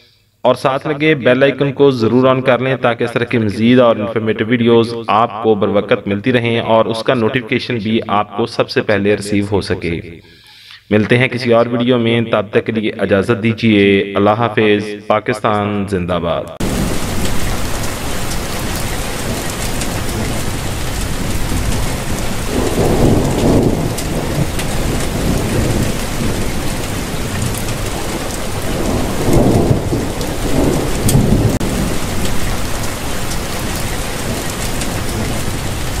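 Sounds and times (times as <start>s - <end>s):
steady rain: 16.6s - 36.0s
thunder rumbling: 16.6s - 36.0s.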